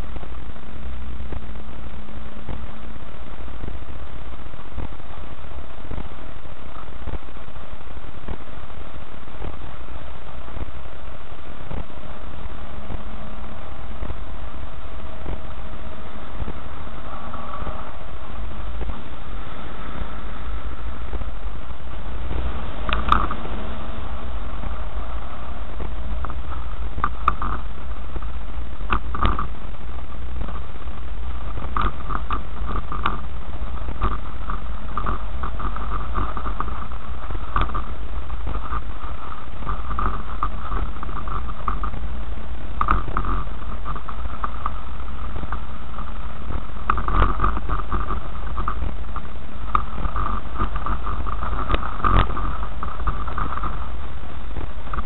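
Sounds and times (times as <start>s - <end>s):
car rumble on dirt track: 0.0s - 55.0s
rattles and knocks over bumps: 11.5s - 55.0s.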